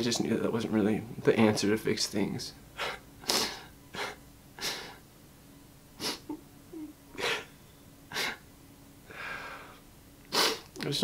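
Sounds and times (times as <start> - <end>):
man sniffling while crying: 2.8 - 5.0, 6.0 - 8.4, 9.1 - 10.7.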